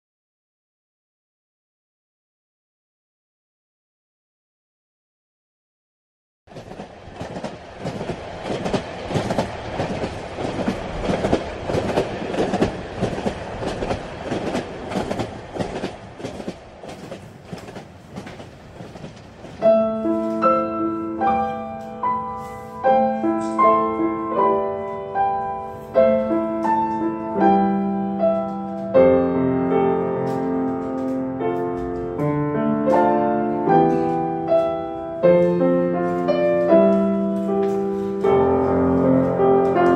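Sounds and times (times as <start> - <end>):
train wheels clicking on rails: 6.5 - 20.5, 30.2 - 32.2
grand piano melody: 19.4 - 39.9.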